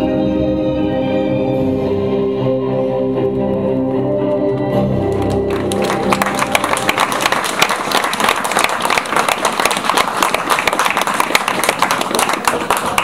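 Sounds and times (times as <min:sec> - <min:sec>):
closing music: 0:00.0 - 0:13.0
audience applauding: 0:05.1 - 0:13.0.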